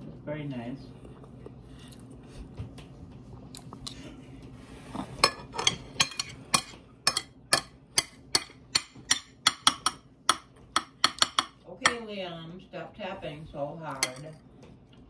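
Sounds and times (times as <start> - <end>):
sharp hard tapping: 6.0 - 12.0.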